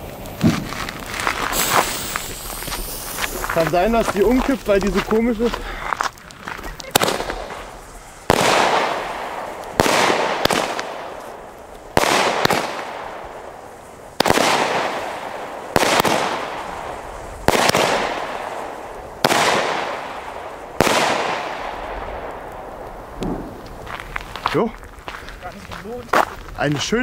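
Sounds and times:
firework battery bangs: 0.0s - 24.4s.

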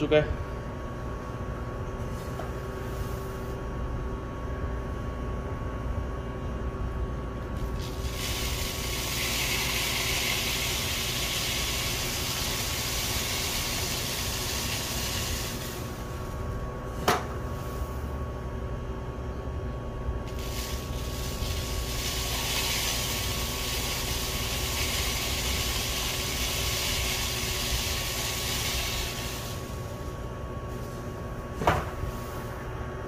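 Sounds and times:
electric fan humming: 0.0s - 33.0s
seed pouring hiss: 7.7s - 15.8s, 20.3s - 29.7s.

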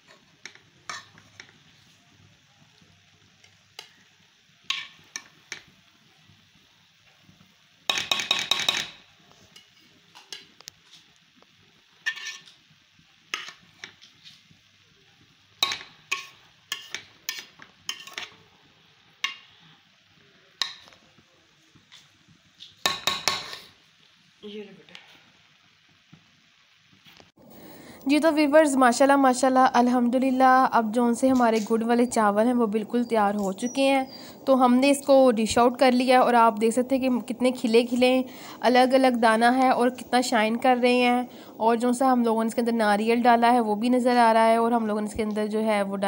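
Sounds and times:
metal spoon scraping pot: 12.0s - 12.5s, 15.6s - 18.4s.

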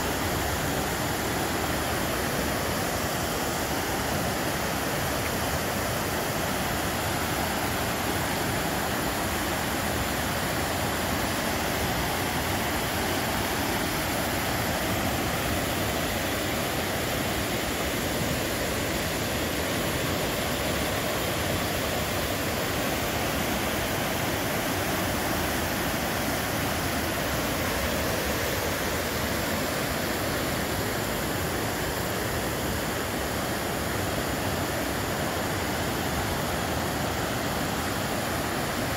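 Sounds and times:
river rapids rushing: 0.0s - 38.9s.

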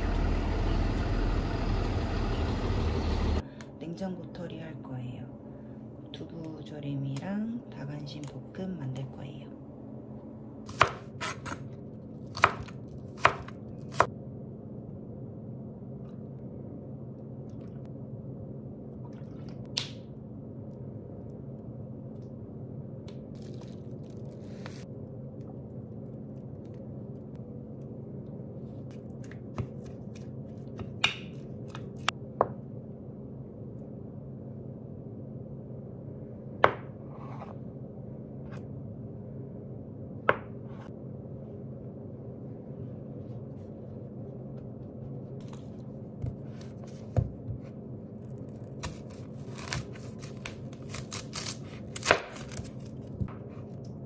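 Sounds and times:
steady low hum: 0.0s - 54.0s
knife chopping on cutting board: 10.7s - 11.6s.

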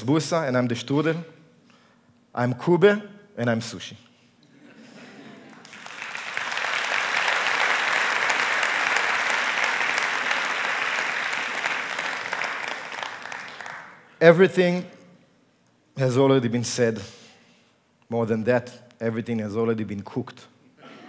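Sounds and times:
audience applauding: 5.5s - 14.1s.

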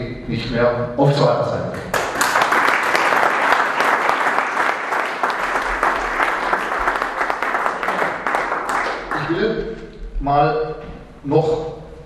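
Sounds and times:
audience applause: 1.9s - 9.4s.

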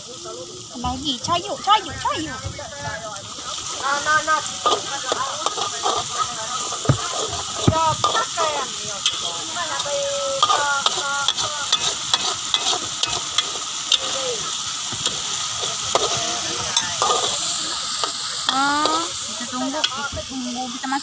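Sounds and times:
paste sizzling in oil: 0.0s - 21.0s
metal spatula scraping wok: 3.7s - 20.0s.

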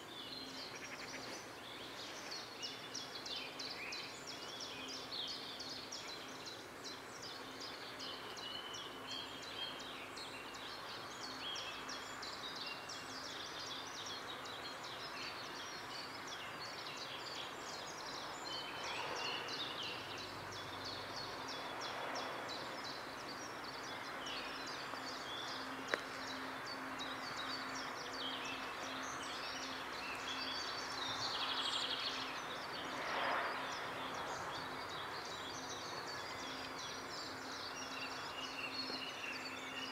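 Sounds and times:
small birds chirping: 0.0s - 39.9s
soft rushing noise: 17.9s - 37.4s.

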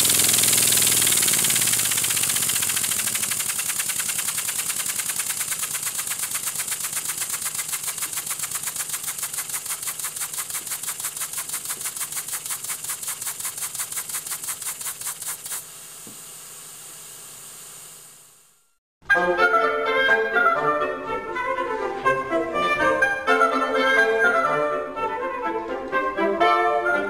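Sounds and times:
model steam engine chuffing: 0.0s - 15.7s
steady air hiss: 0.0s - 18.1s.

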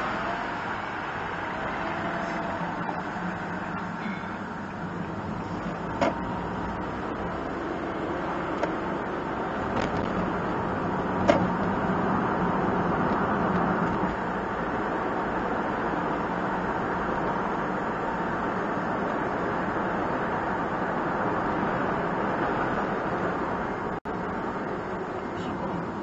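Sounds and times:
van engine hum and road noise: 0.0s - 26.0s.

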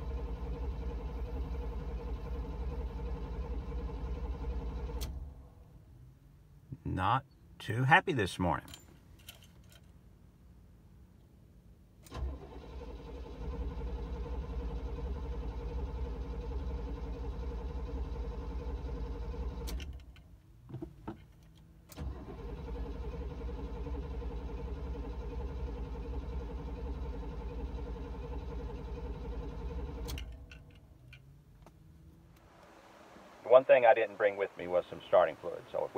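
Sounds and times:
car starter cranking engine: 0.0s - 5.4s, 12.0s - 32.3s.

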